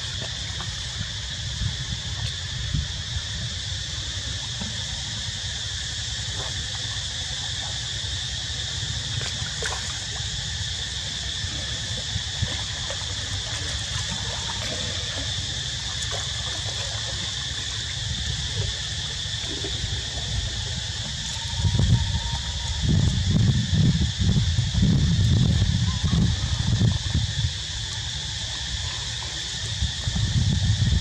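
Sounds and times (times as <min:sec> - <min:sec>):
high-pitched insect buzz: 0:00.0 - 0:31.0
water splashing and trickling: 0:06.1 - 0:21.5.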